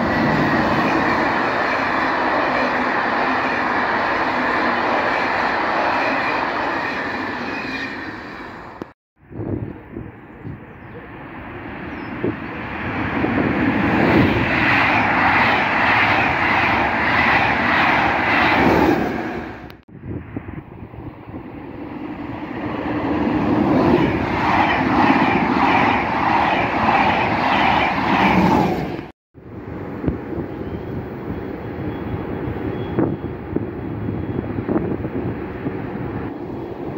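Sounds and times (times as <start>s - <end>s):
train wheels rumbling on rails: 0.0s - 9.0s, 21.3s - 36.9s.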